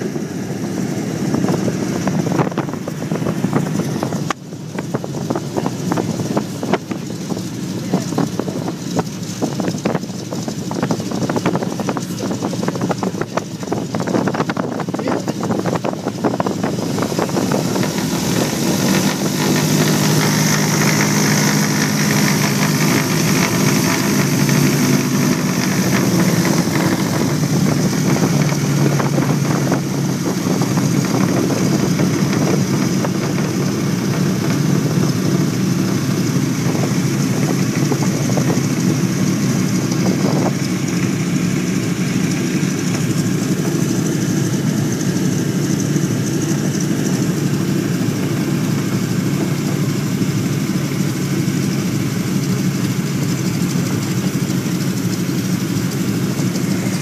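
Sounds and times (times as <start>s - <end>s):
aircraft engines running: 0.0s - 57.0s.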